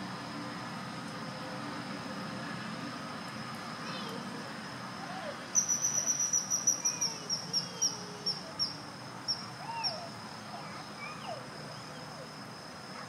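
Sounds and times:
kingfisher shrill calls: 5.6s - 7.9s.

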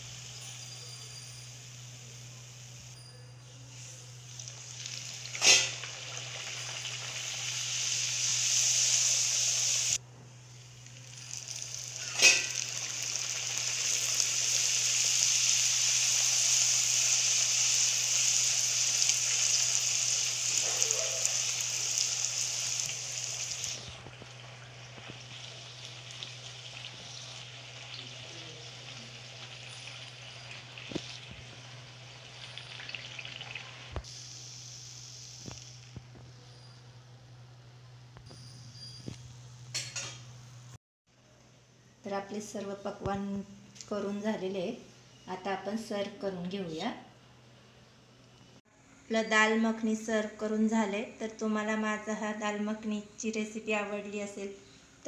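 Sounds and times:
dough sizzling in hot oil: 4.2s - 10.0s, 10.7s - 36.2s.

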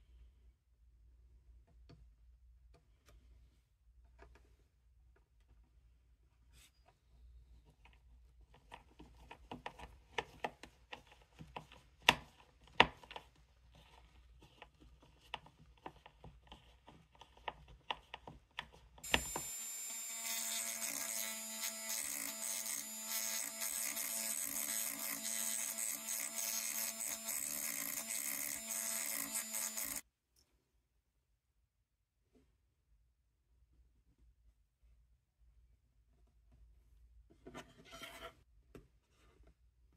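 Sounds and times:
rotary tool grinding: 19.0s - 30.0s
hand screwdriver driving screws: 19.1s - 30.0s.

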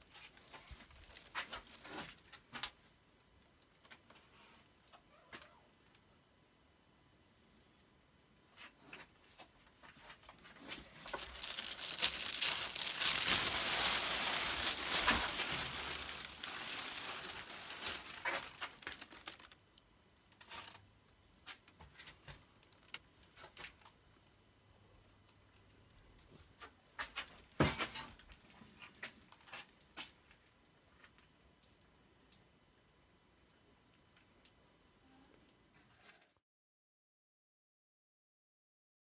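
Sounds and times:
foil crinkling: 0.0s - 2.6s, 10.0s - 19.6s, 20.2s - 20.8s, 21.6s - 23.9s, 27.0s - 29.8s.

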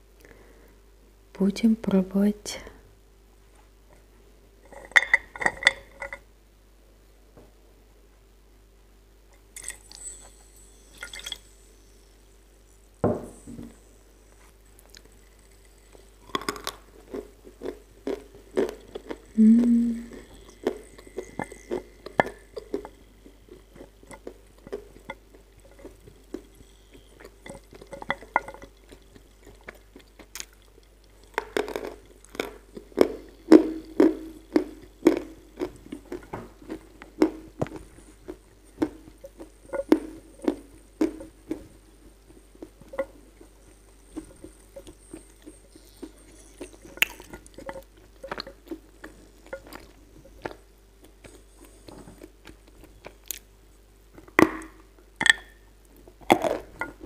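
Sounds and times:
crunchy chewing: 13.4s - 53.5s.

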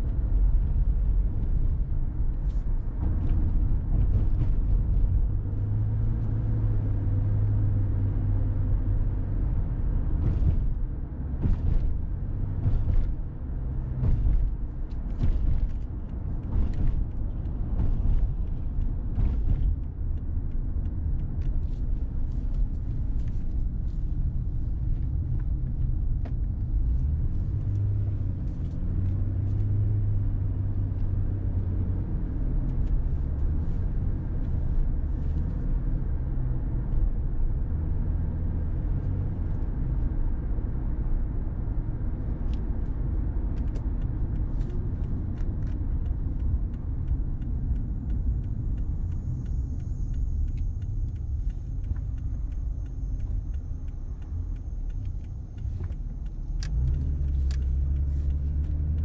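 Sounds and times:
car engine and tyre rumble: 0.0s - 59.0s
faint ticks: 43.6s - 59.0s.

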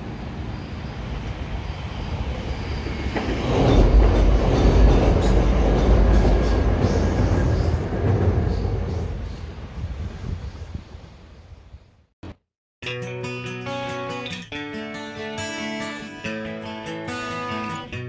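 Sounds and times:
train wheels clattering over rails: 2.8s - 9.5s.

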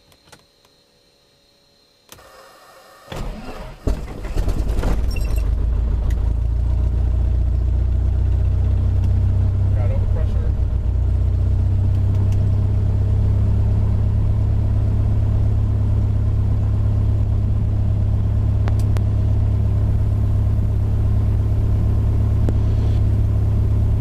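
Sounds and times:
aircraft engine idling: 5.4s - 24.0s.

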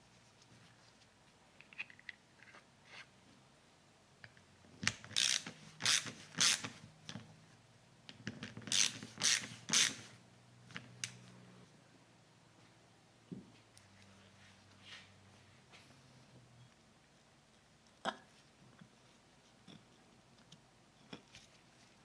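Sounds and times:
hand ratchet clicking: 5.1s - 6.7s.

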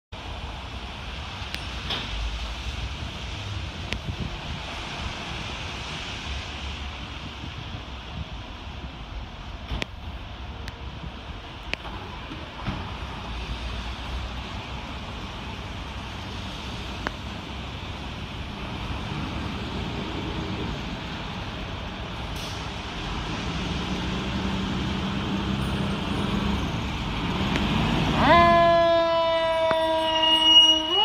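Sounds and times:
fire engine siren: 27.8s - 31.0s.

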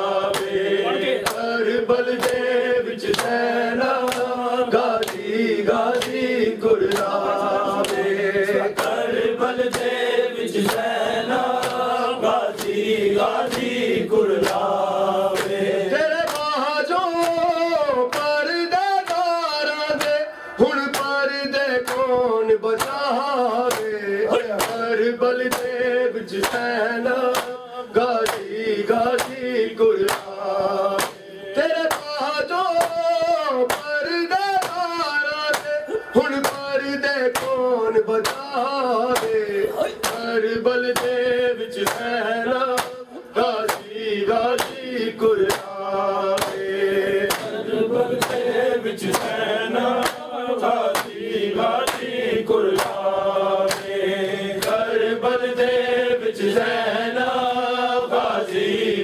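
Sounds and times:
men chanting a lament: 0.0s - 59.0s
hand slaps on bare chests: 0.3s - 0.6s, 1.2s - 4.4s, 5.0s - 5.3s, 5.9s - 6.3s, 6.9s - 8.1s, 8.7s - 9.1s, 9.7s - 14.7s, 15.3s - 15.6s, 16.2s - 16.5s, 21.8s - 22.0s, 22.8s - 23.1s, 23.7s - 25.8s, 26.4s - 27.6s, 28.2s - 28.5s, 29.1s - 36.7s, 37.3s - 37.6s, 38.2s - 40.3s, 40.9s - 41.2s, 41.8s - 44.0s, 44.6s - 44.8s, 45.4s - 45.8s, 46.4s - 47.6s, 48.2s - 49.4s, 50.0s - 50.3s, 50.9s - 54.0s, 54.6s - 54.9s.

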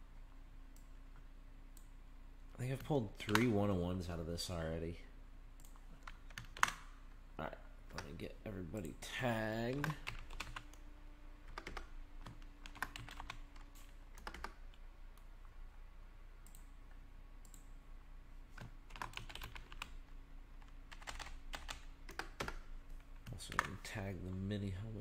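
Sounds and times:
faint steady hum: 0.0s - 25.0s
typing on a computer keyboard: 5.6s - 6.9s, 9.6s - 10.8s, 11.5s - 14.6s, 18.5s - 20.0s, 20.6s - 23.8s.

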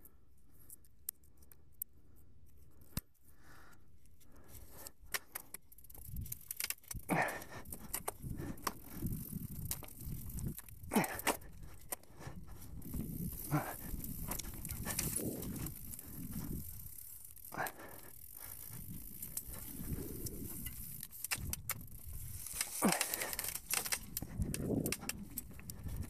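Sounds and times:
bike chain and frame rattling: 4.4s - 26.0s
bike scrapes: 12.6s - 17.1s.

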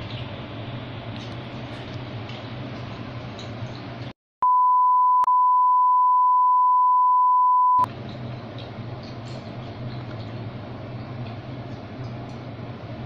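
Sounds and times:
electronic bleep tone: 4.4s - 7.9s.

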